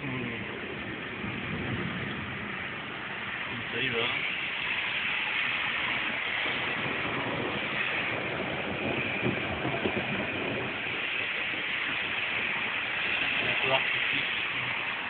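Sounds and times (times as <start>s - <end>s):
rain falling: 0.0s - 15.0s.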